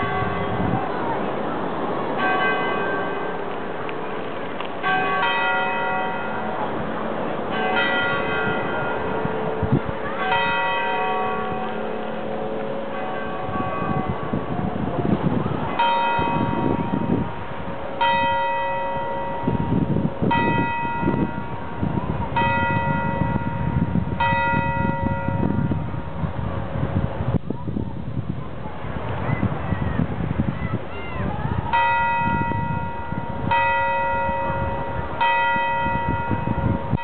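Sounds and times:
church bell tolling: 0.0s - 1.2s, 2.1s - 14.8s, 15.6s - 26.2s, 31.7s - 37.0s.

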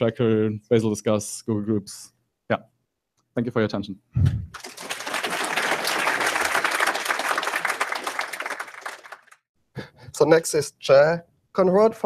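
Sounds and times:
audience applauding: 4.5s - 9.5s.

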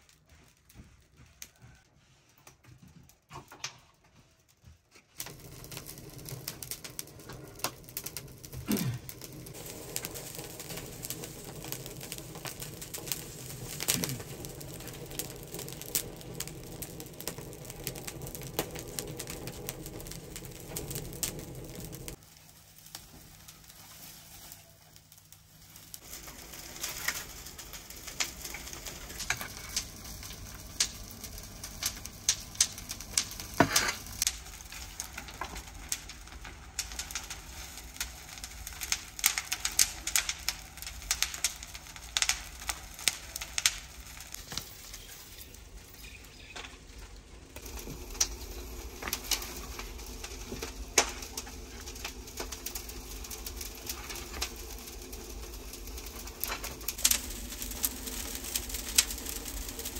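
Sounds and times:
twigs crackling and popping in fire: 0.0s - 59.9s.

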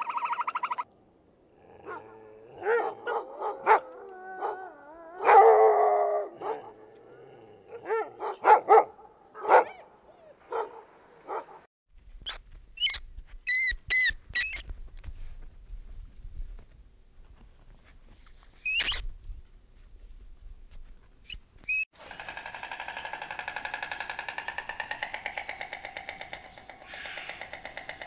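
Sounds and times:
dog barking and yipping: 1.8s - 6.9s, 7.7s - 11.7s
dog whining: 1.8s - 8.1s
monkey squeaking: 12.2s - 14.6s, 18.6s - 19.0s.

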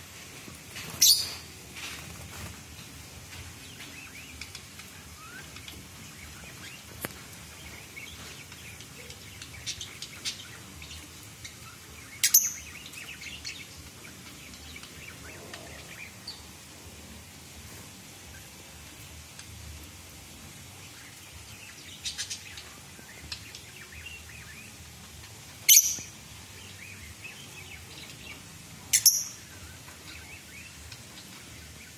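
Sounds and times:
lovebirds twittering and chirping: 0.7s - 17.0s, 20.4s - 31.9s.

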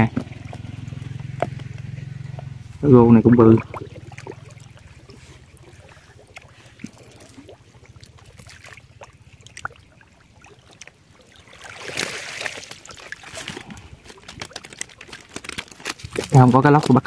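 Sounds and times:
reeds rustling: 11.5s - 17.0s.

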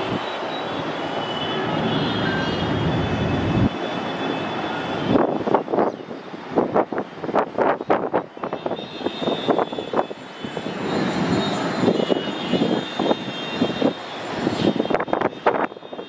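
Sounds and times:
jet engines rushing: 1.0s - 4.1s.

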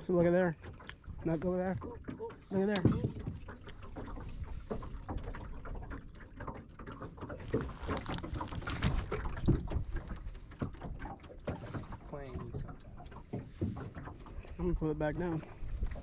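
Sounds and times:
wind buffeting microphone: 11.6s - 16.0s.

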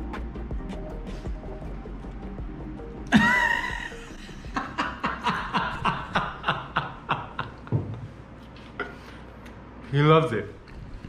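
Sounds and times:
man laughing heartily: 3.1s - 7.9s.

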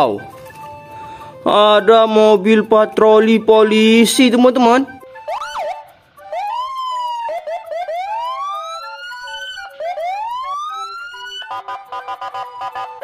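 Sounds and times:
police siren wailing: 5.0s - 13.0s
two-tone siren yelp: 5.2s - 13.0s.

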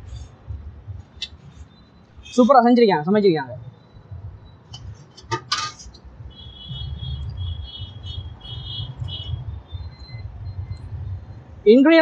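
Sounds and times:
low steady rumble: 3.6s - 11.8s.

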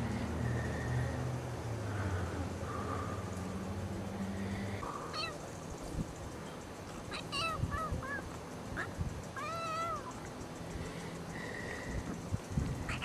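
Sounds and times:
kitten mewing: 5.1s - 5.4s.

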